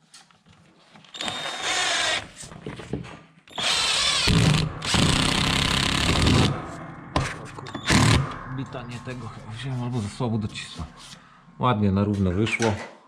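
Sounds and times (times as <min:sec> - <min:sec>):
cordless drill driving screw into wood: 0:01.1 - 0:02.4, 0:03.5 - 0:06.5.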